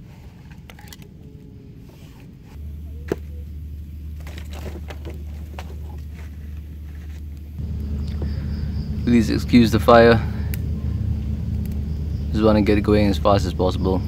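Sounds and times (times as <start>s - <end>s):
campfire low rumble: 0.0s - 14.0s
fire crackling and snapping: 5.2s - 14.0s.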